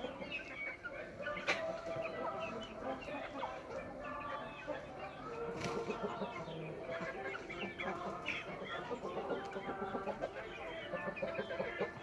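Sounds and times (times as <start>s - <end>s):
chickens calling: 0.0s - 12.0s.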